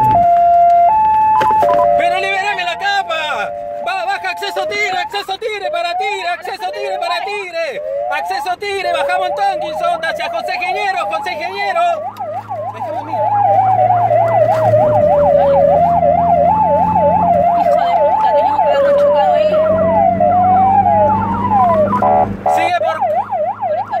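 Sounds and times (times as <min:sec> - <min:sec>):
low engine hum: 0:00.0 - 0:24.0
police siren: 0:00.0 - 0:24.0
horn blast: 0:13.3 - 0:22.9.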